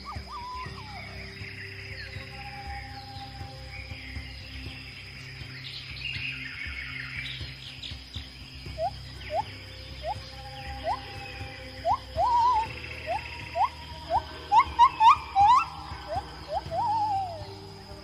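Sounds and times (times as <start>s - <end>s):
short rising whistled notes: 0.0s - 4.6s, 8.7s - 18.0s
birds chirping and trilling: 0.0s - 18.0s
steady low drone: 0.0s - 18.0s.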